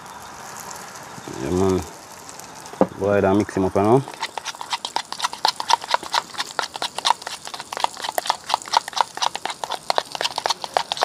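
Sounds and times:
spoon stirring and clicking in bowl: 4.1 - 11.0.

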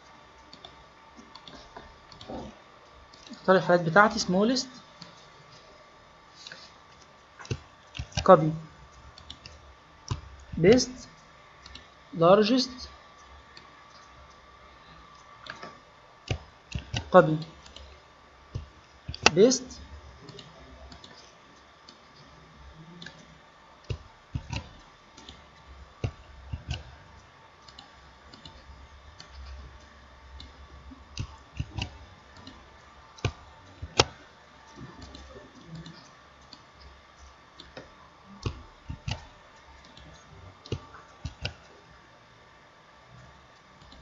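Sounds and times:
faint steady hum: 0.0 - 44.0
computer mouse clicking: 0.4 - 2.5, 6.4 - 11.9, 15.1 - 22.2, 23.0 - 41.7, 43.2 - 44.0.

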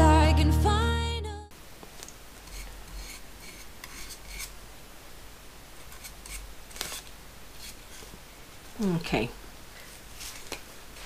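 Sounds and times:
paintbrush scraping and dabbing: 2.4 - 4.5.

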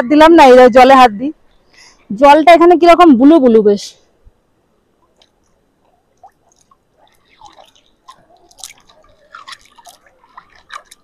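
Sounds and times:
hand splashing in stream water: 6.2 - 11.0.

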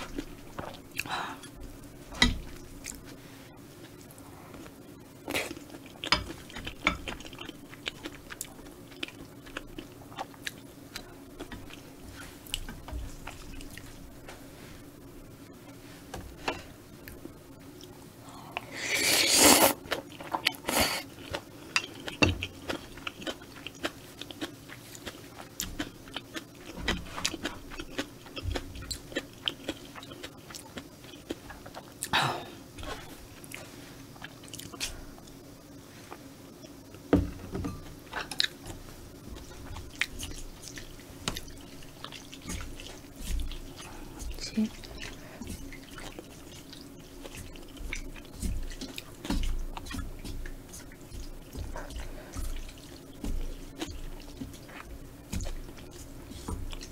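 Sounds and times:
slurping noodles: 18.7 - 19.8
chewing with wet mouth clicks: 21.2 - 32.1, 39.4 - 56.9.

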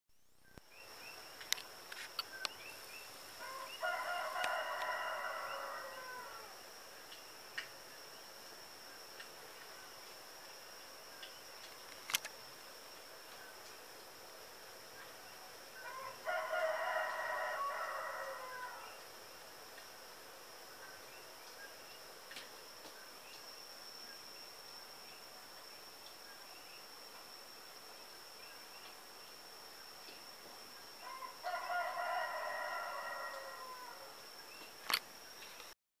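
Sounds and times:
rooster crowing: 3.4 - 6.6, 15.8 - 19.0, 31.0 - 34.2.

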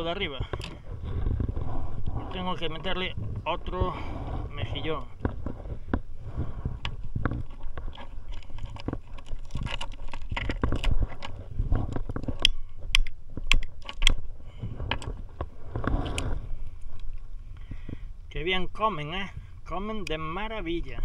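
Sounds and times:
steady low rumble: 0.0 - 21.0
clicks and scrapes of shell and gear: 0.1 - 3.4, 4.5 - 17.3.

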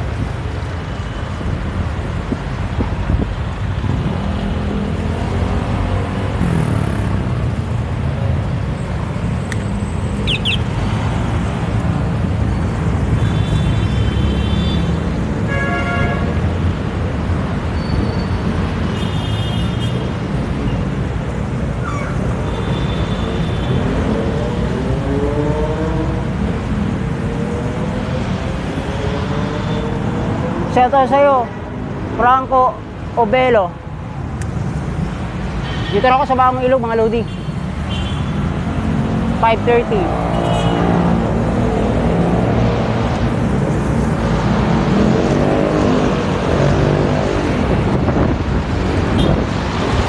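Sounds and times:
city road traffic: 0.0 - 50.0
wind rumble on microphone: 2.2 - 4.3, 47.2 - 50.0.

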